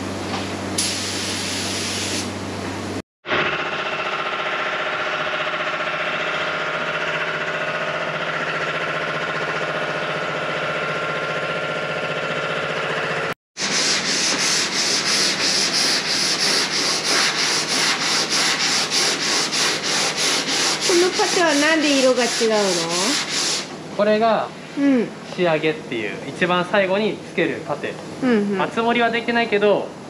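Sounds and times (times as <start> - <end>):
sandpaper rubbing on car panel: 13.6 - 23.7.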